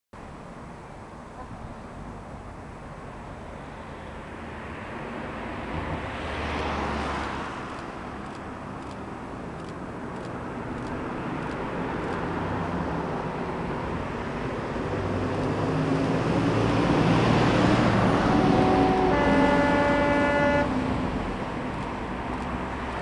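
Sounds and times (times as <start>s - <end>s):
diesel locomotive engines: 7.6s - 23.0s
two-tone locomotive horn: 18.0s - 20.9s.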